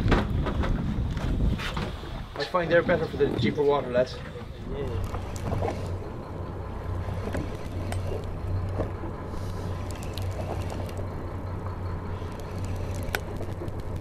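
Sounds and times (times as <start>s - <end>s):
boat engine hum: 0.0s - 14.0s
faint clicks: 9.5s - 11.1s.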